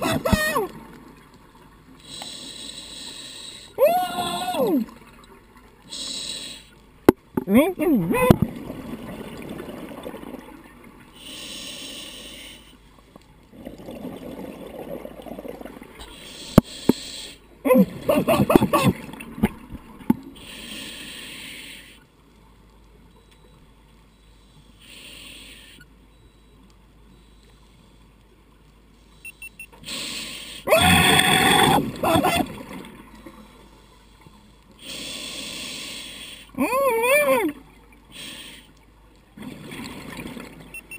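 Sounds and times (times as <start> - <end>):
hissing regulator inhalations: 2.0 - 3.8, 5.9 - 6.8, 11.2 - 12.8, 16.0 - 17.4, 20.4 - 22.1, 24.3 - 25.9, 29.0 - 30.7, 33.4 - 36.6, 38.1 - 38.8.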